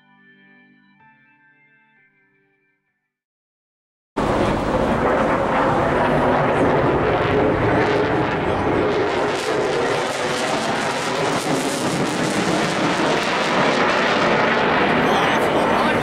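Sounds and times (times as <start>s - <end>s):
jet flying overhead: 4.2s - 16.0s.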